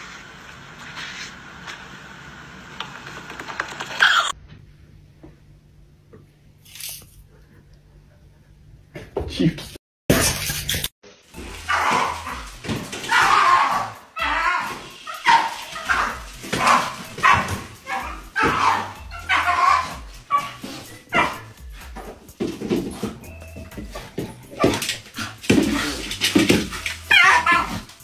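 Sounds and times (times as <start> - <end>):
dog barking: 15.1 - 17.6, 21.1 - 21.5.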